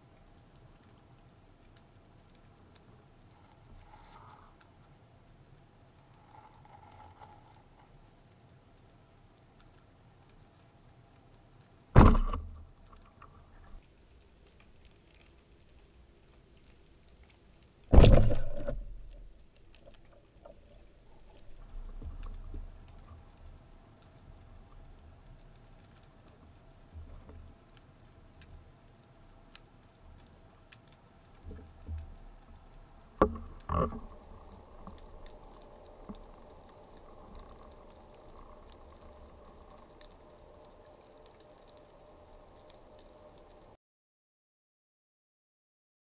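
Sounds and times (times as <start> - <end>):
underwater clicks crackling: 0.0 - 13.8, 16.4 - 43.8
sharp knocks: 12.0 - 12.5
speargun firing underwater: 12.0 - 12.6, 17.9 - 18.8.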